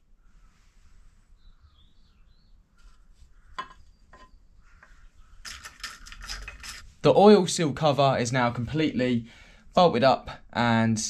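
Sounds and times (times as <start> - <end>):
faint bird chirp: 0.0 - 5.5.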